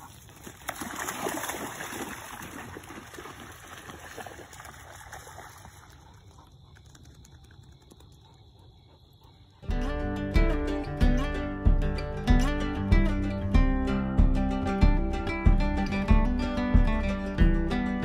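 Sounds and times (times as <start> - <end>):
dogs splashing through water: 0.0 - 7.6.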